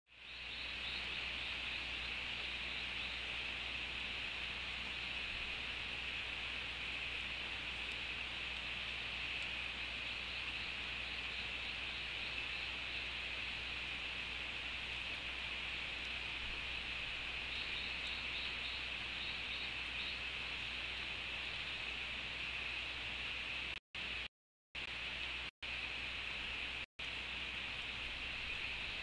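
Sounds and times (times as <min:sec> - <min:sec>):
insect chorus drone: 0:00.1 - 0:29.0
rain hissing: 0:00.1 - 0:29.0.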